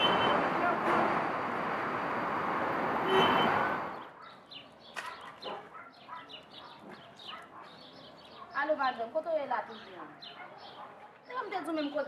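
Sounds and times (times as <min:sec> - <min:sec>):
loud street noise: 0:00.0 - 0:12.0
small birds chirping: 0:03.9 - 0:12.0.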